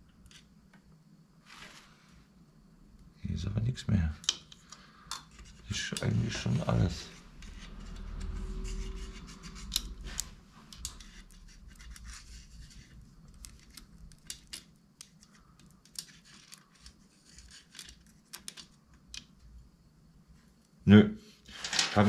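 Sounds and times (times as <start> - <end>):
metal probe scratching: 5.3 - 14.6
low handling rumble: 6.0 - 11.4
small metallic clicks: 13.3 - 19.4.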